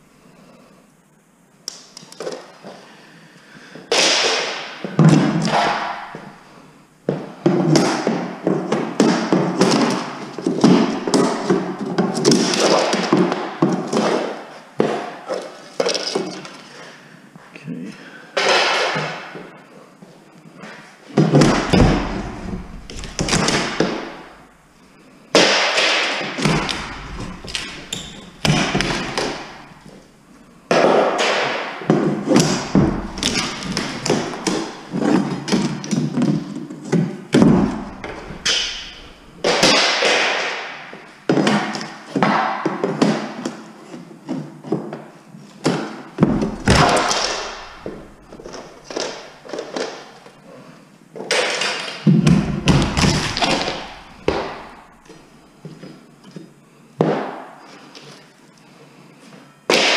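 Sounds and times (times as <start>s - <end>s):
boards knocking and clattering: 21.2s - 24.4s, 25.4s - 30.0s, 30.8s - 40.6s, 45.7s - 50.0s, 51.3s - 55.2s
heavy thuds: 21.2s - 24.7s, 26.4s - 30.2s, 32.2s - 35.6s, 37.4s - 39.8s, 46.2s - 49.2s, 52.1s - 55.2s.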